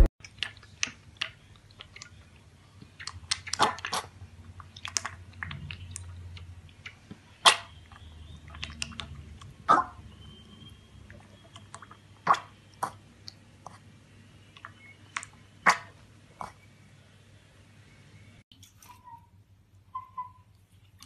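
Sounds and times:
piglet slurping milk: 0.0 - 9.7.

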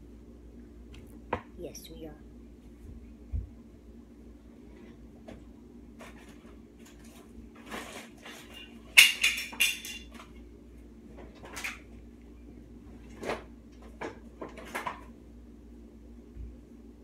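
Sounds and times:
faint steady hum: 0.0 - 17.0
rustling and clattering objects: 4.5 - 12.0, 12.8 - 15.2.

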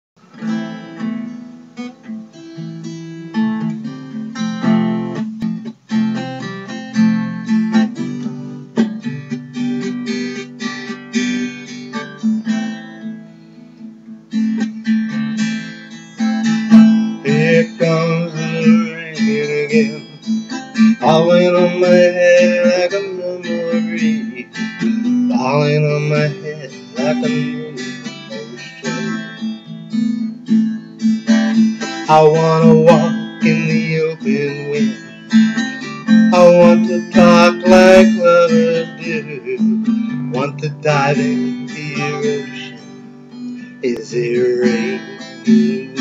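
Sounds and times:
acoustic guitar strumming: 0.2 - 46.0
man vocalizing without words: 26.4 - 29.2.

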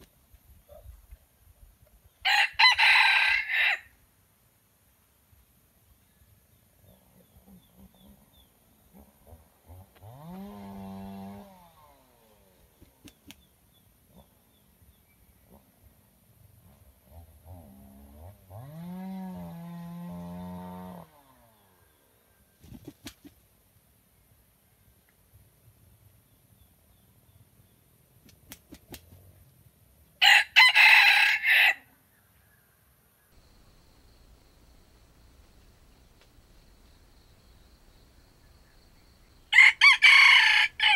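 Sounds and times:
rooster crowing: 2.2 - 3.9, 30.2 - 31.9, 39.4 - 40.9.

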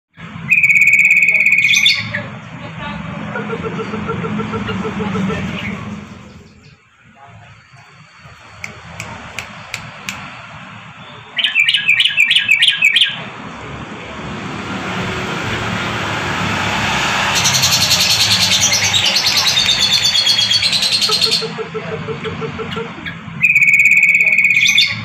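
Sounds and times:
bulbul chirping and singing: 17.3 - 21.6.

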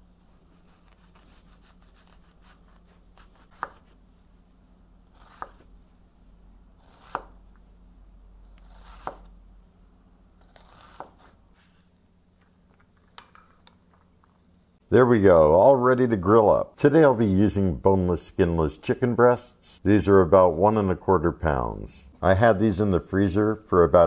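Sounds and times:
knife cutting onion: 0.6 - 4.0, 5.1 - 5.8, 6.8 - 7.4, 8.4 - 9.4, 10.4 - 11.4.

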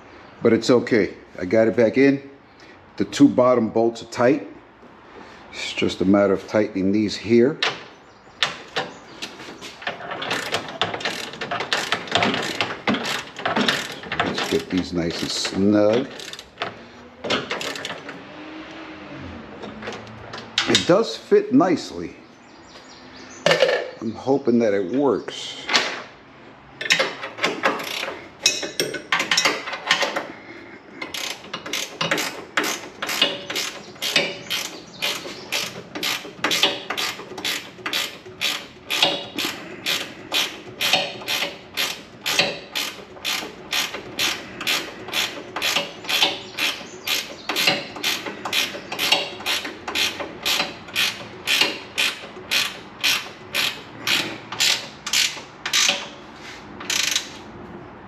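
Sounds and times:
ratchet wrench clicking: 10.2 - 16.7, 17.4 - 18.0, 26.8 - 30.2, 31.0 - 56.2, 56.8 - 57.4.

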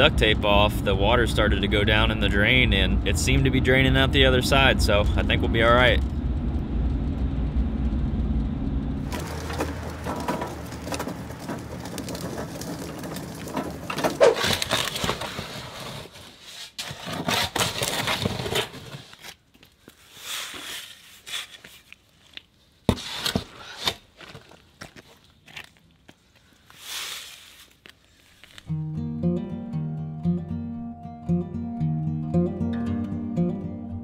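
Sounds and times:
vehicle cabin rumble: 0.0 - 14.4
scraping and crackling handling noises: 9.1 - 28.7.

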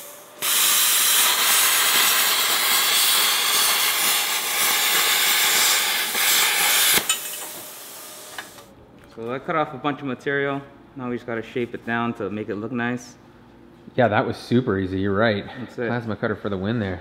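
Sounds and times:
plasma cutter hissing: 0.0 - 8.7.

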